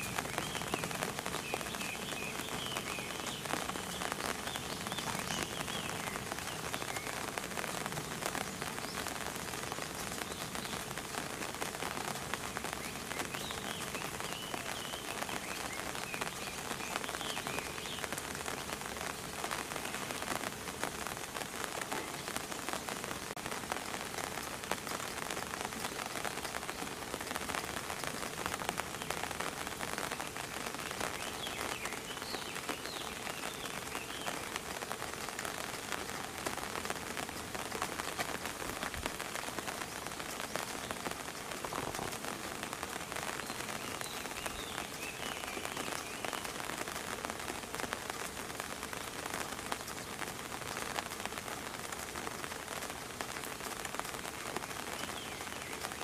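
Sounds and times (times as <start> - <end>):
rain pattering: 0.0 - 56.0.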